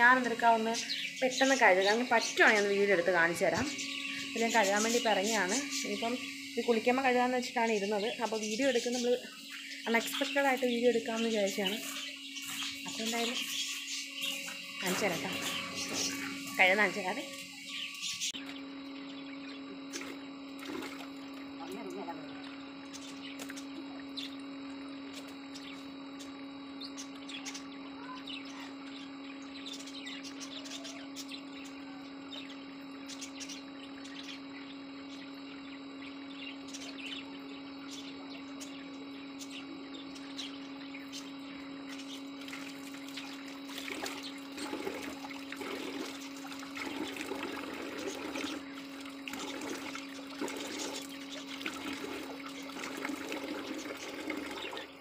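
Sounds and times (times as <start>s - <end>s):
steady hum: 0.0s - 55.0s
water running from a tap: 19.9s - 21.5s, 42.4s - 55.0s.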